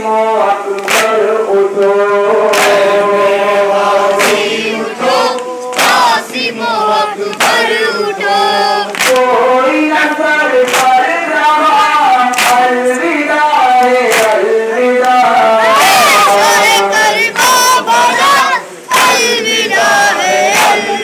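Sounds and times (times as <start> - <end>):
men chanting in unison: 0.0 - 21.0
hands slapping chests: 0.8 - 1.2, 2.5 - 2.9, 4.2 - 4.5, 5.4 - 6.1, 7.3 - 7.7, 8.9 - 9.3, 10.6 - 11.0, 12.3 - 12.7, 13.8 - 14.4, 18.9 - 19.3, 20.5 - 20.8.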